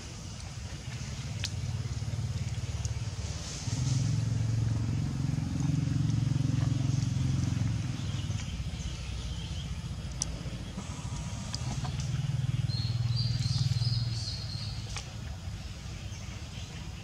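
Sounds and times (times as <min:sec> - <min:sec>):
vehicle engine rumble: 0:00.0 - 0:17.0
bird chirps: 0:07.7 - 0:15.0.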